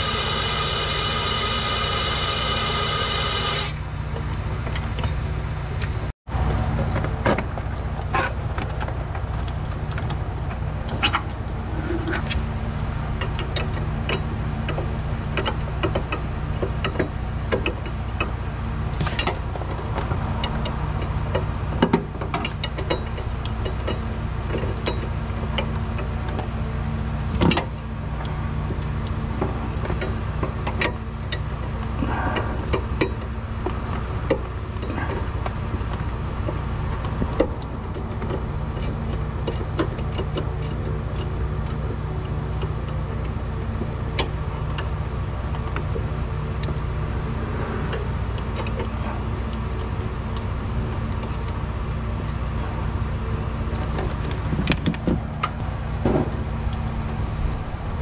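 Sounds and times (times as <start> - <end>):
tone-rich whine: 0.0 - 6.6, 44.2 - 58.0
car engine running: 0.0 - 58.0.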